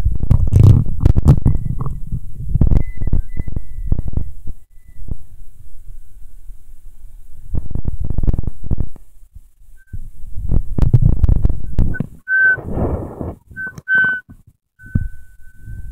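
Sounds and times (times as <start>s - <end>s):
short high whistle tones: 12.2s - 15.9s.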